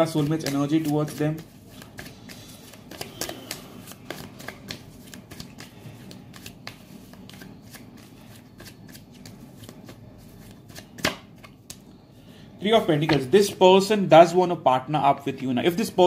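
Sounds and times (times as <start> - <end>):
cards being shuffled: 0.0 - 11.8.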